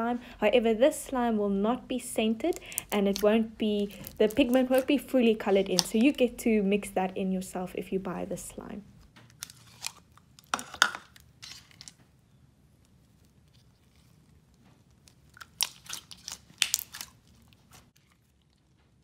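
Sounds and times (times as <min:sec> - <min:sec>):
slime sticky clicks and pops: 0:15.4 - 0:17.1.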